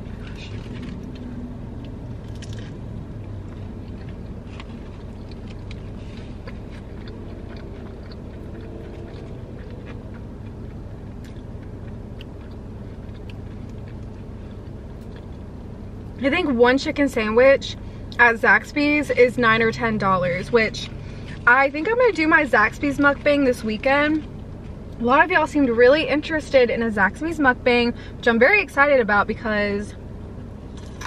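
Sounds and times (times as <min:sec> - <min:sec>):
person chewing crunchy food: 0:00.0 - 0:16.1
low hum: 0:00.0 - 0:31.0.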